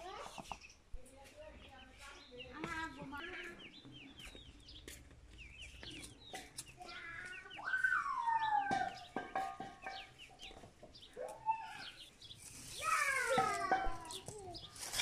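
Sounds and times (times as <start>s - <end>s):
small birds chirping: 0.0s - 15.0s
dry sticks crackling: 10.4s - 15.0s.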